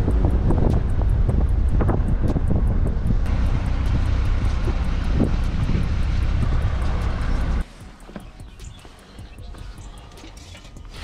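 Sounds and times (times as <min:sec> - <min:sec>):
wind buffeting microphone: 0:00.0 - 0:07.6
car engine and tyre noise: 0:00.0 - 0:11.0.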